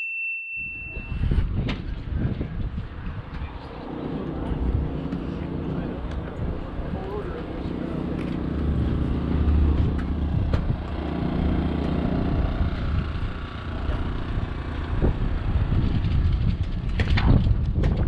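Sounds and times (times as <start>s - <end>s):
engine idling: 3.6s - 17.1s
sharp clicks and knocks: 15.8s - 18.0s.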